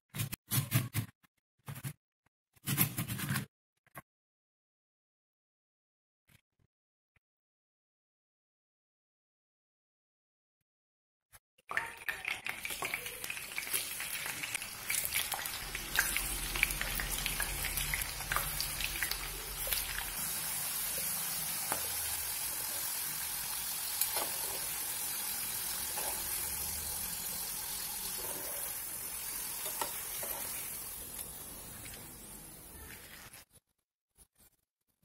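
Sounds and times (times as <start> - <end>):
potatoes sizzling in hot oil: 12.5 - 33.5.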